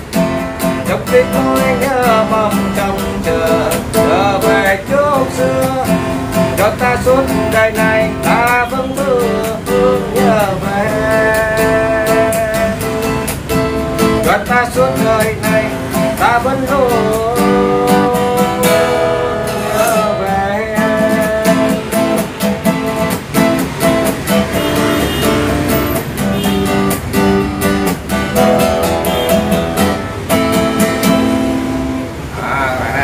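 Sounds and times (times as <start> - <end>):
acoustic guitar strumming: 0.0 - 33.0
man singing: 0.8 - 13.4, 14.0 - 22.4.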